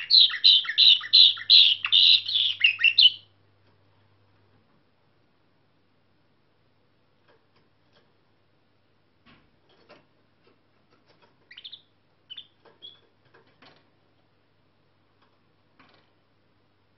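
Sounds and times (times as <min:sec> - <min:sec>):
canary chirping: 0:00.0 - 0:03.3, 0:10.9 - 0:13.6.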